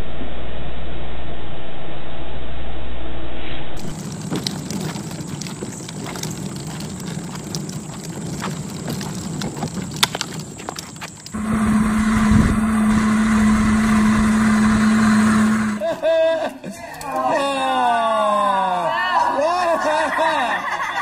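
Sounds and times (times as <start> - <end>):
toy wagon wheels rolling on concrete: 3.8 - 16.0
toy electric motor whine: 11.3 - 15.8.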